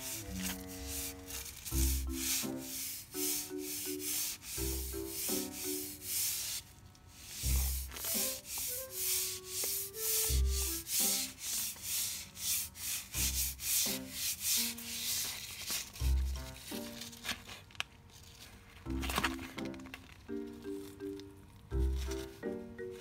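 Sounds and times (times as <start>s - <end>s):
background music with low thump: 0.0s - 6.6s, 7.2s - 11.8s, 12.4s - 17.6s, 18.8s - 23.0s
broom brushing fabric floor: 0.0s - 17.2s.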